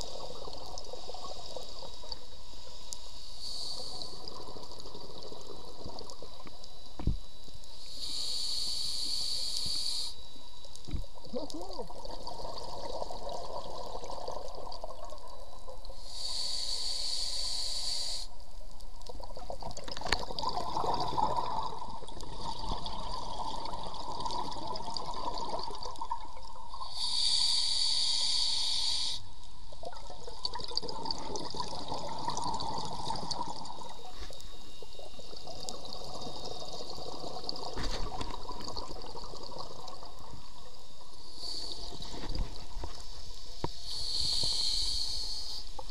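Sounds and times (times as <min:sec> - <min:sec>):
regulator air hiss: 0:00.9 - 0:04.6, 0:06.8 - 0:10.5, 0:16.0 - 0:18.4, 0:26.8 - 0:29.5, 0:40.4 - 0:45.9.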